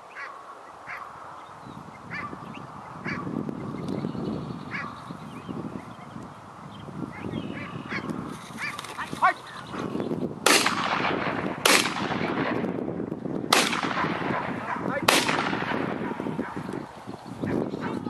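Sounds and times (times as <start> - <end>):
shotgun shots echoing: 10.4 - 12.8, 13.5 - 16.6.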